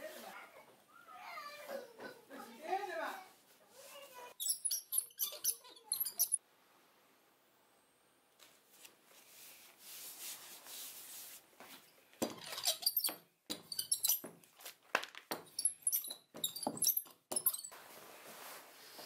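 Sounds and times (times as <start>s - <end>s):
leather squeaks and crackles: 11.8s - 14.9s, 15.5s - 17.8s.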